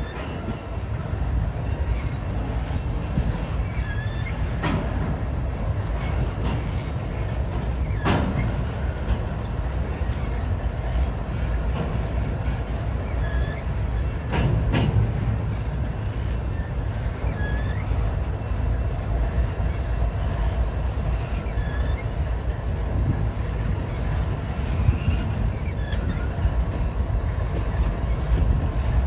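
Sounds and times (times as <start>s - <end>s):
freight train wheels rumbling: 0.0s - 29.0s
wheel squeals: 0.0s - 29.0s.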